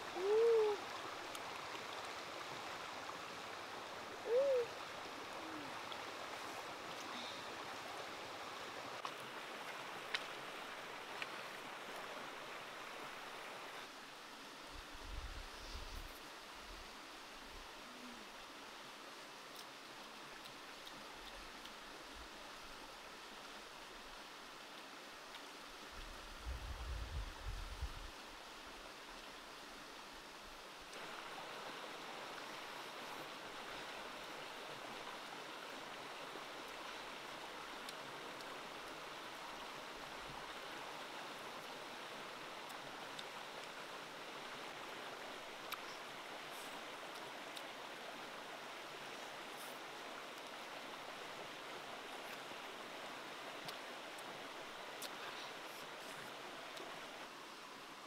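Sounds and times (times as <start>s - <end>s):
faint clicks: 45.6s - 46.0s.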